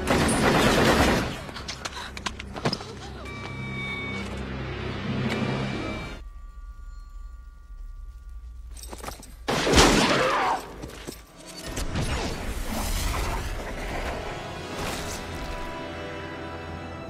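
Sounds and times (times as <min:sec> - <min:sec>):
film music: 0:00.0 - 0:17.0
faint steady tone: 0:05.8 - 0:09.4.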